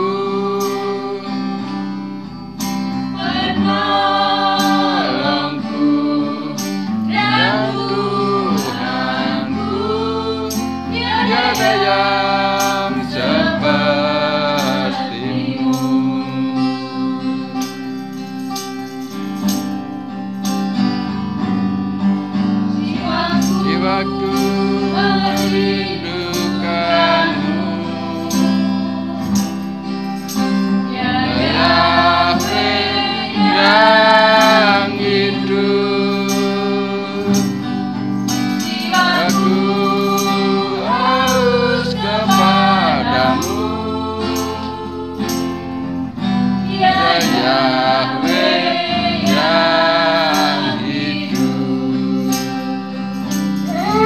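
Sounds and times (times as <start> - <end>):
acoustic guitar: 0.0 - 54.0
woman singing into a microphone: 3.2 - 17.5, 22.8 - 29.4, 30.9 - 35.5, 38.6 - 45.2, 46.7 - 51.4, 53.7 - 54.0.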